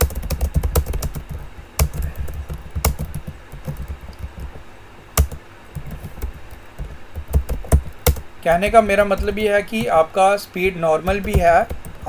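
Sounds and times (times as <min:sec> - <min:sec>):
typing on a computer keyboard: 0:00.0 - 0:04.6, 0:05.2 - 0:10.0, 0:11.0 - 0:12.0.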